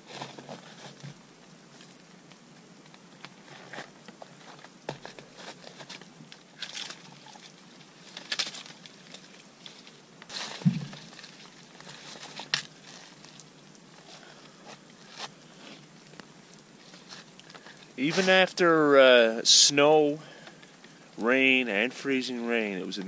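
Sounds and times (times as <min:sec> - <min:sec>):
branches rustling: 0:00.0 - 0:21.6
twigs snapping: 0:04.9 - 0:15.4
dull thud: 0:10.6 - 0:11.1.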